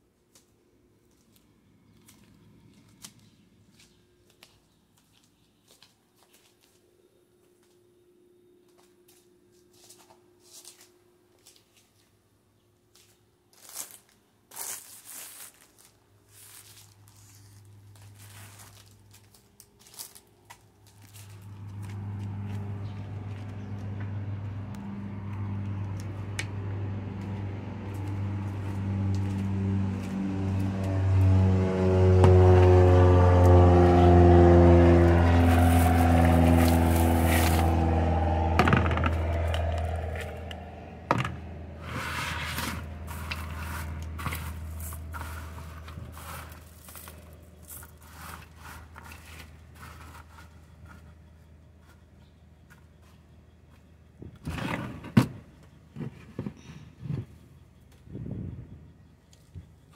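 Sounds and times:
light scrapes and crackles: 0:12.9 - 0:24.0, 0:41.8 - 0:52.1, 0:54.4 - 0:55.3
passing vehicle engine hum: 0:16.2 - 0:54.2.

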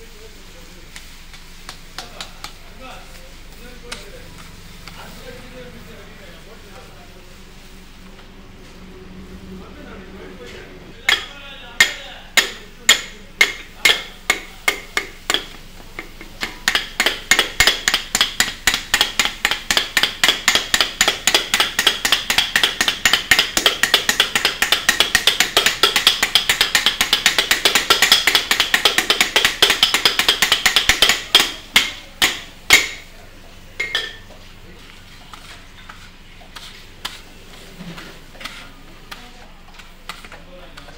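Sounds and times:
metal striking iron griddle: 0:10.9 - 0:33.1.

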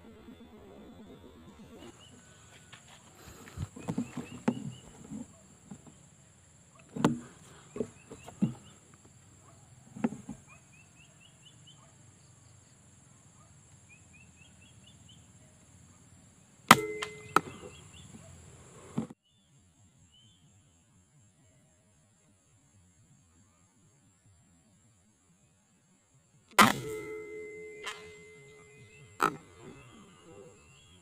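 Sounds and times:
faint high whine: 0:00.0 - 0:05.8, 0:16.7 - 0:19.1, 0:26.6 - 0:31.0
small bird chirping: 0:00.0 - 0:12.8
air rifle shot: 0:16.7 - 0:17.7, 0:26.6 - 0:28.6.

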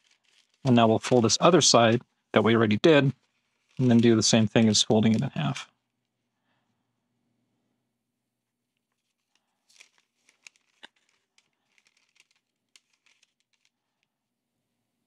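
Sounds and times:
paper crinkling: 0:00.0 - 0:05.5, 0:08.9 - 0:14.1.

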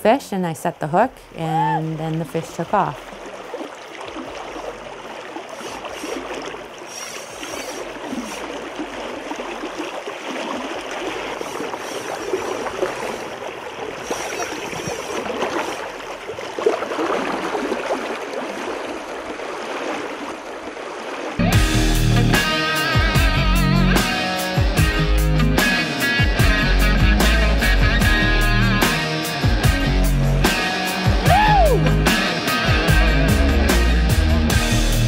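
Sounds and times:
river current rushing: 0:01.2 - 0:21.6.

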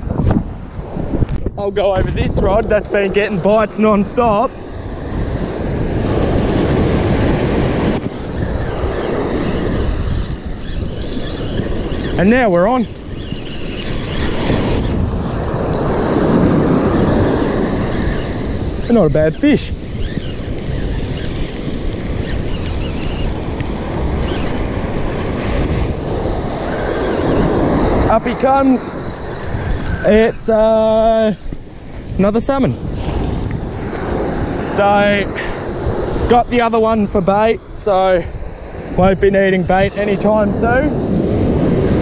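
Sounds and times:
surf washing: 0:00.0 - 0:42.0
wind buffeting microphone: 0:00.0 - 0:42.0
fishing reel cranking: 0:08.0 - 0:30.1.

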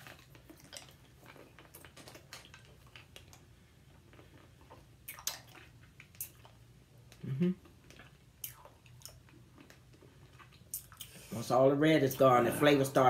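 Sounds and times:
low room hum: 0:00.0 - 0:13.0
wet mouth clicks and smacks: 0:04.1 - 0:07.2, 0:07.8 - 0:11.2.

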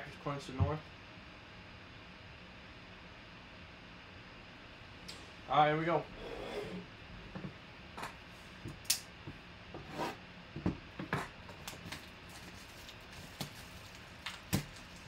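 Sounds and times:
plastic wrap crinkling: 0:11.6 - 0:15.0.

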